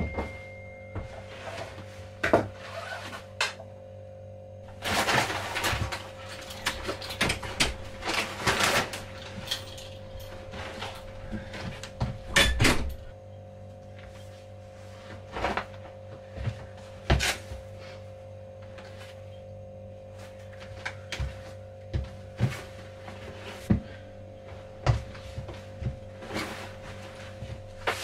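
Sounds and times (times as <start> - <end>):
low hum: 0.0 - 28.0
clothes and backpack rustling: 1.2 - 3.2.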